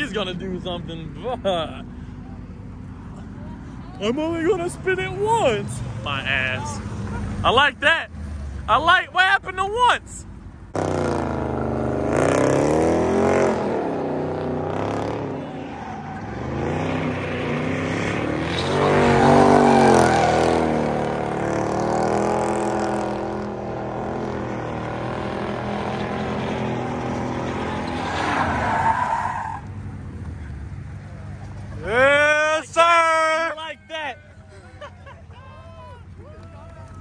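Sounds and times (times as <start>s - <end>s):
car engine revving hard: 10.7s - 15.5s, 16.1s - 28.8s
tyres squealing: 27.5s - 29.7s.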